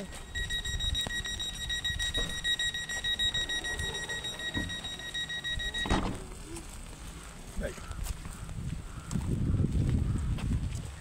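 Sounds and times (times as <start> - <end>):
high-pitched electronic warning tone: 0.0 - 6.2
thump: 2.1 - 2.4, 5.8 - 6.3.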